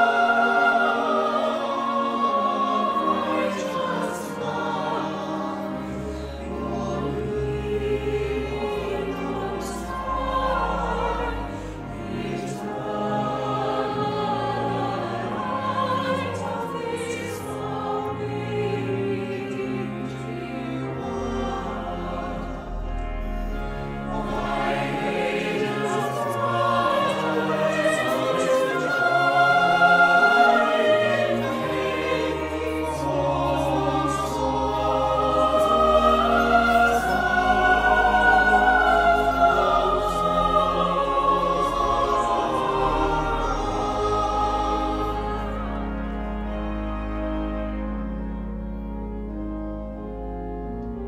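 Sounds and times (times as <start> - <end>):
mixed choir singing: 0.0 - 51.0
organ holding low notes: 0.0 - 51.0.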